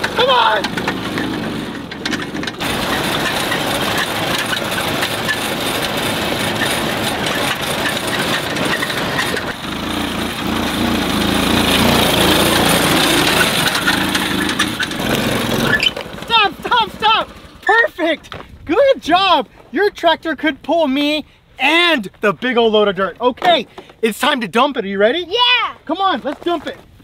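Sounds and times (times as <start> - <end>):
small tractor engine running: 0.0 - 17.9.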